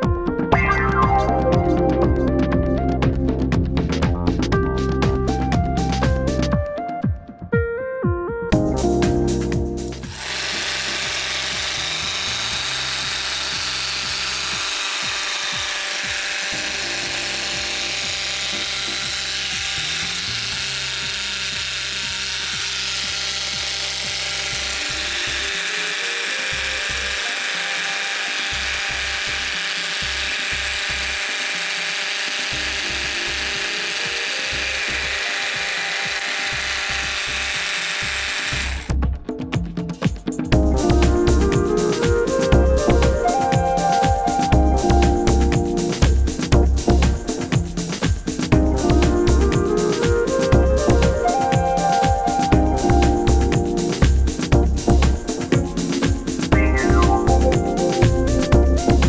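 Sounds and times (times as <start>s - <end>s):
jigsaw running with no load: 10.0s - 39.0s.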